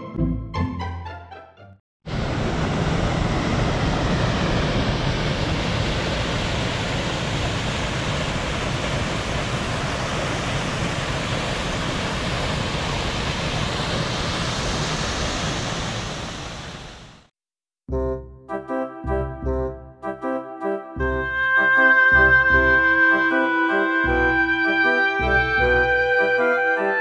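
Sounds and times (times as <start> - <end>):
waterfalls pouring into river: 5.6 - 17.3.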